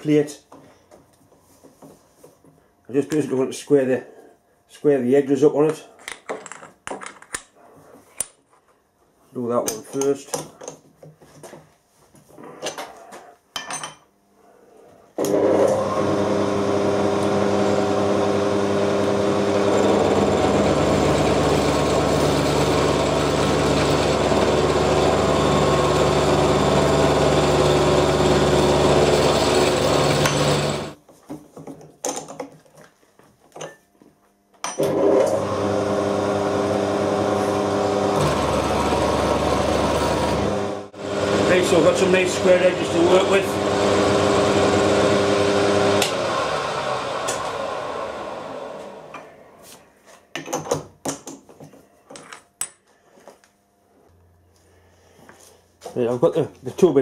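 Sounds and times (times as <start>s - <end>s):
milling machine cutting metal: 15.2s - 31.0s.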